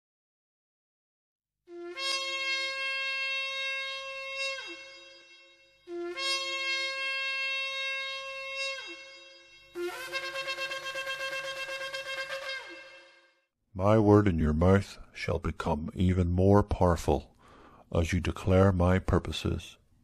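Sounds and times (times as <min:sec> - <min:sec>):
shofar blasts: 0:01.7 - 0:13.5.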